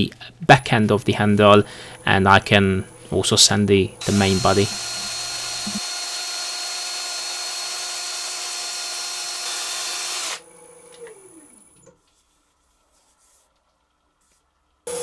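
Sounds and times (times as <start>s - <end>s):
power sanding whirr: 3.9s - 11.6s.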